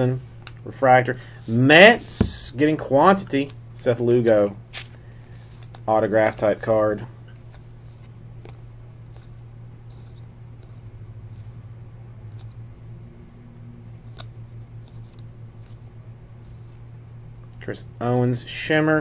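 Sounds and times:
steady low hum: 0.0 - 19.0
trading cards being shuffled: 7.3 - 11.6, 12.2 - 12.6, 13.9 - 16.8.

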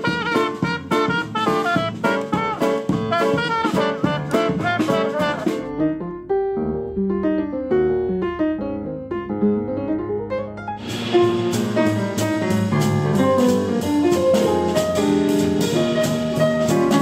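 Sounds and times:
trumpet: 0.0 - 5.8
jazz band playing: 0.0 - 7.4, 10.5 - 17.0
slow piano notes: 0.0 - 17.0.

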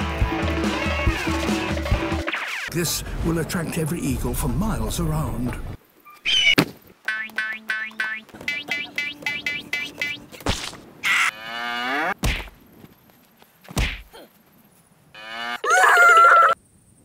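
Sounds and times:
cow mooing: 11.2 - 12.2, 15.2 - 15.6
thuds of punching bag struck: 12.2 - 12.6, 13.7 - 14.1
child screaming: 15.6 - 16.6.

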